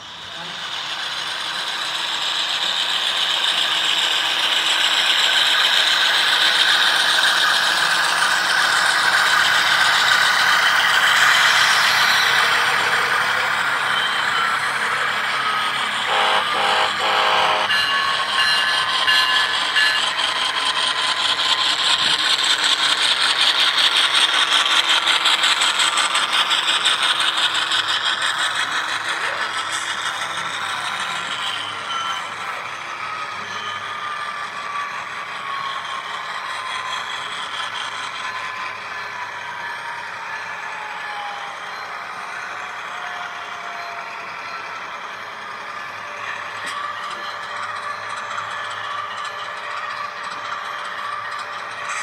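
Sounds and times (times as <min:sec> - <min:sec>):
model train wheels clicking: 0:00.0 - 0:40.6, 0:44.1 - 0:52.0.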